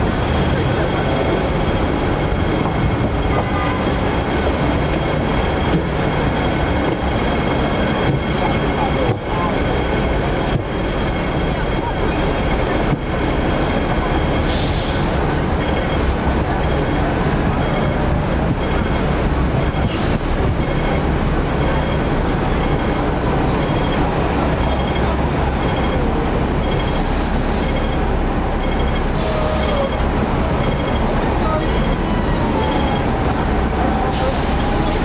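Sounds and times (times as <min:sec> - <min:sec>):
tram rumbling on rails: 0:00.0 - 0:35.0
faint high beeps: 0:15.5 - 0:19.9, 0:20.6 - 0:27.0, 0:27.6 - 0:33.2.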